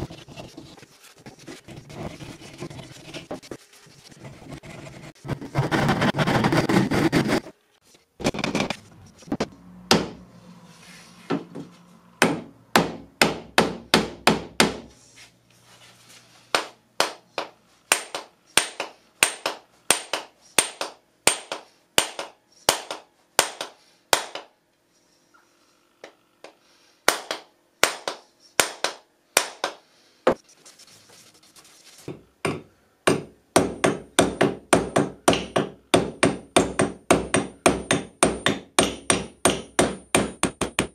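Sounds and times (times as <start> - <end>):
rasping noise: 0.0 - 7.6
hammer striking wedge: 9.9 - 10.2, 12.2 - 14.9, 32.1 - 40.9.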